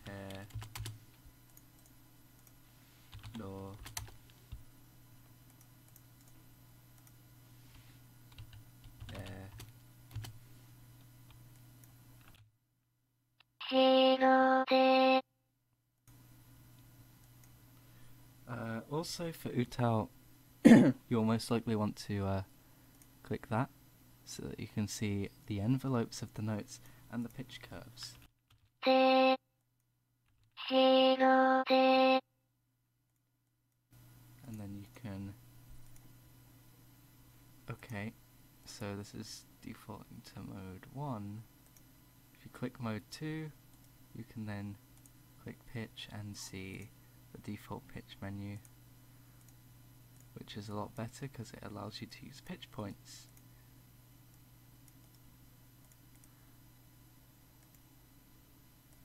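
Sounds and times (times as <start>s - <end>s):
synthesized voice singing notes: 13.6s - 15.2s, 28.8s - 29.4s, 30.6s - 32.2s
faint low hum: 34.0s - 59.0s.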